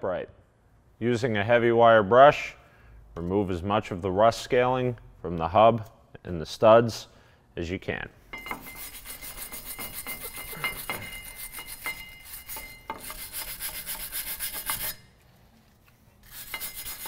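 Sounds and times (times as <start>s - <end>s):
wire brush scrubbing metal: 8.5s - 15.1s, 16.2s - 17.0s.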